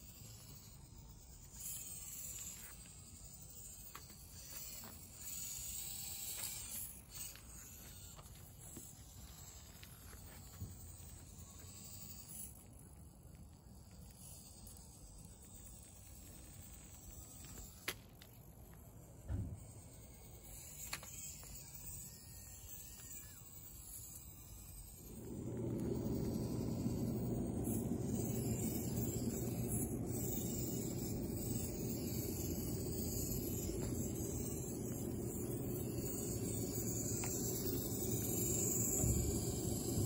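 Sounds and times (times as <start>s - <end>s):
low wind rumble on microphone: 24.9s - 40.0s.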